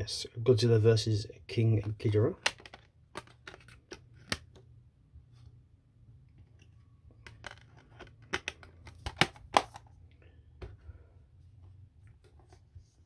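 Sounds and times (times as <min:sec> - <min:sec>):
plastic disc case clicks and knocks: 0:01.8 - 0:04.6, 0:07.2 - 0:09.9
faint clicks of cases handled: 0:01.8 - 0:04.7, 0:06.4 - 0:10.9.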